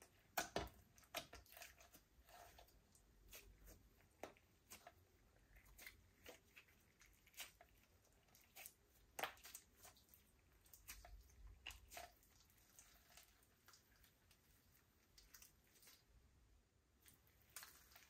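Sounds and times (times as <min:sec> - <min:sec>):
wet slime squishing: 0:00.0 - 0:18.0.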